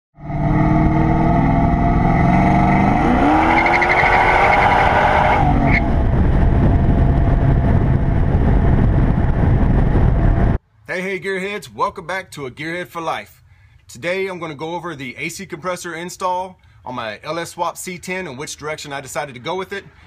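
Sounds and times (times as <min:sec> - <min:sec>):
pickup engine accelerating: 0:00.2 - 0:10.6
tyre and wind rumble: 0:00.6 - 0:10.6.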